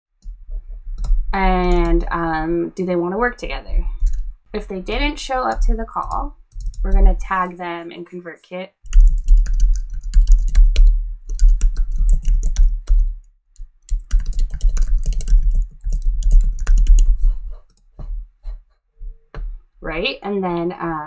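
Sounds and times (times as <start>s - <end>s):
fast typing on keyboard: 0.2s - 2.1s, 3.8s - 7.5s, 8.8s - 17.9s.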